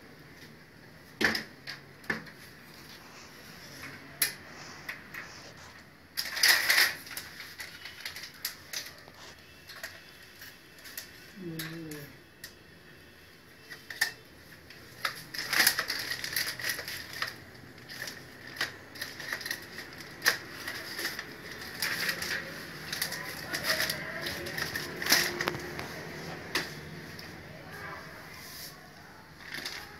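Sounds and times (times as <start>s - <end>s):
packaging rustling and crinkling: 5.2s - 11.3s, 13.7s - 29.9s.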